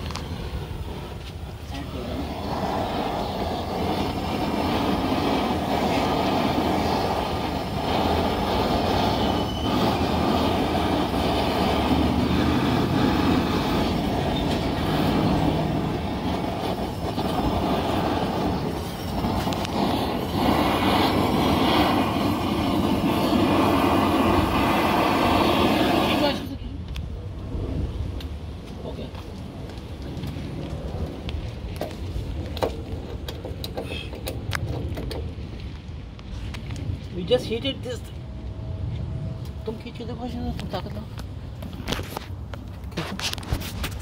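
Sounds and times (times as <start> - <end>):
heating tool roaring: 0.0 - 26.6.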